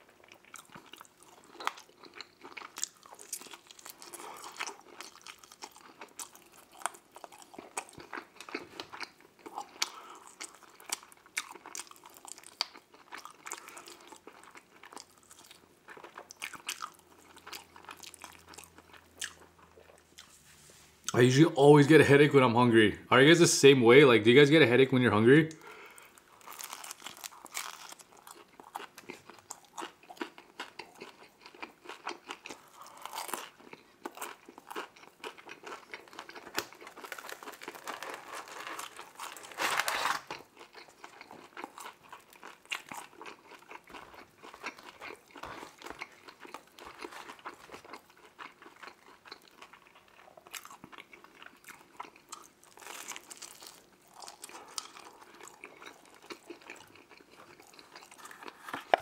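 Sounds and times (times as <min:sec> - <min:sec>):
person chewing pizza: 0:00.0 - 0:21.2, 0:25.5 - 0:59.0.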